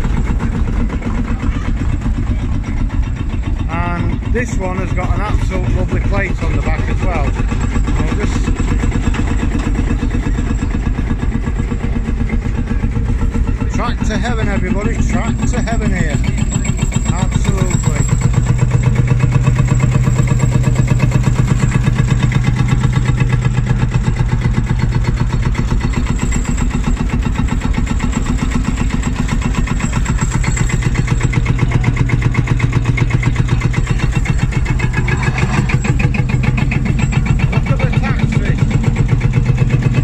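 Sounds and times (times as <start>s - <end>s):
tractor diesel engine idling: 0.0s - 40.0s.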